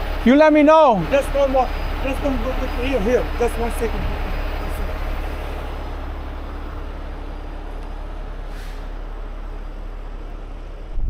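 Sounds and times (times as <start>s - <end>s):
diesel engine running: 0.0s - 11.0s
short faint hiss: 8.5s - 9.0s.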